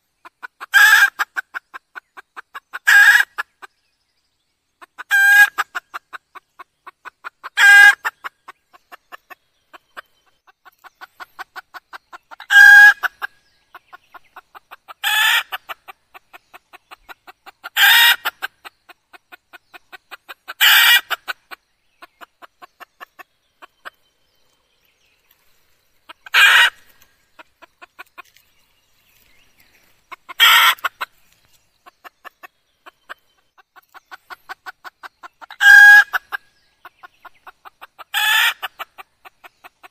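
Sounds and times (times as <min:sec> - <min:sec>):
hen clucking and calling: 0:00.0 - 0:03.8, 0:04.8 - 0:39.9.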